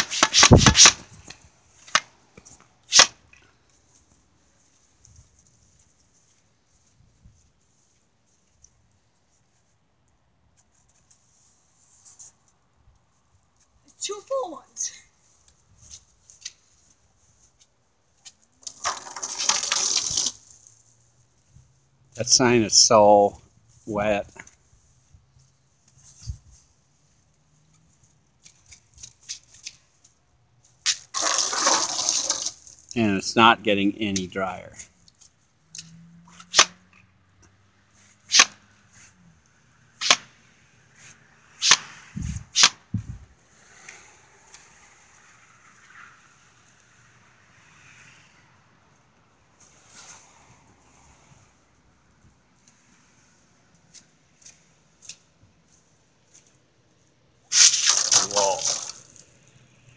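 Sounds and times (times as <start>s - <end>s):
water jet splattering on stone wall: 0.0s - 2.2s, 2.8s - 3.5s, 18.5s - 20.9s, 30.8s - 33.0s, 38.3s - 38.6s, 40.0s - 40.3s, 41.6s - 42.8s, 57.5s - 59.5s.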